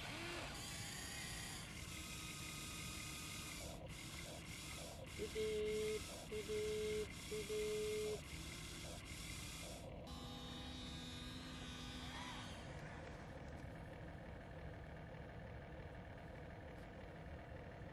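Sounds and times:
small motors whining: 0.0s - 14.0s.

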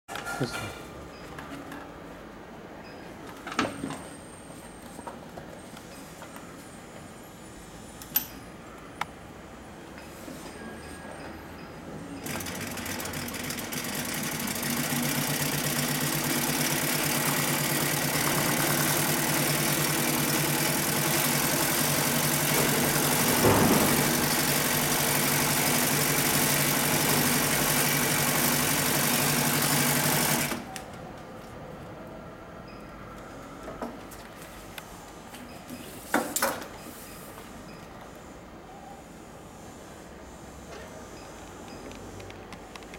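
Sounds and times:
sewing machine sewing: 12.2s - 30.7s.

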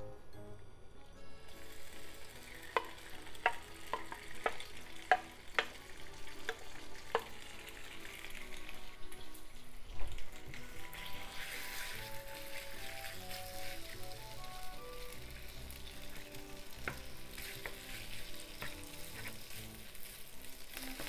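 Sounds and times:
chicken sizzling in oil: 1.5s - 21.0s
spatula knocking and scraping: 2.8s - 5.8s, 16.8s - 19.6s.

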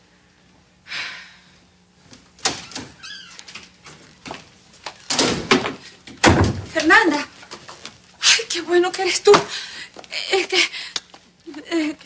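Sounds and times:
door creak: 2.4s - 4.0s.

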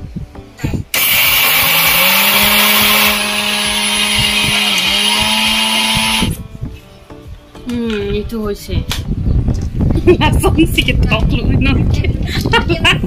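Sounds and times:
mixer grinder motor grinding rice: 1.0s - 6.4s.

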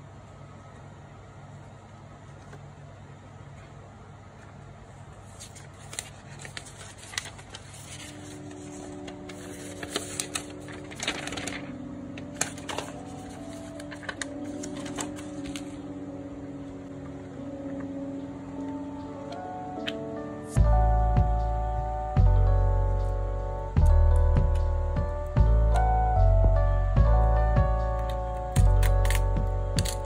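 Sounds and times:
packaging crinkling and rustling: 5.2s - 15.8s
soft background music: 5.3s - 30.0s.

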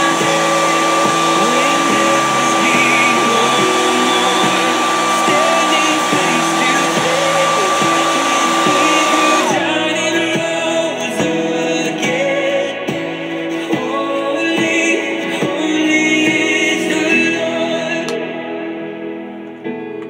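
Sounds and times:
hair dryer running: 0.0s - 10.0s.

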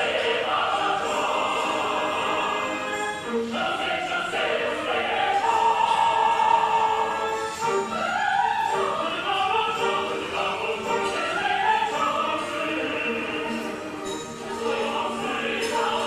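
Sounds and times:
choir singing sustained notes: 0.0s - 16.0s.

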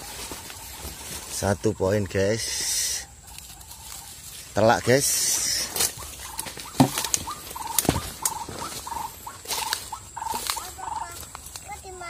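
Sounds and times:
waterhen calling: 0.0s - 11.4s
rustle of vegetation: 0.0s - 12.0s
sharp knocks: 6.7s - 7.2s.

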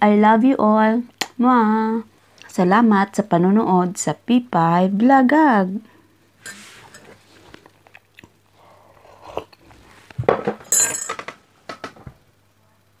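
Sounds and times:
tableware knocks and clinks: 10.2s - 12.1s.

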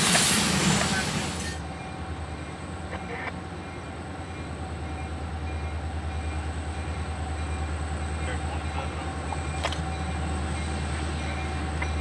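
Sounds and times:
distant freight train rumble: 0.0s - 12.0s.

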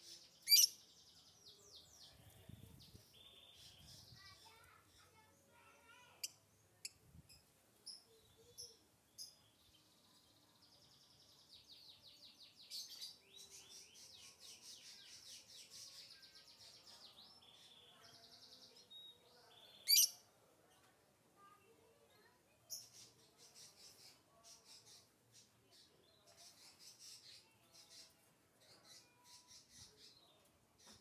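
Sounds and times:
lovebird chirping and trilling: 0.4s - 0.8s, 19.7s - 20.2s.

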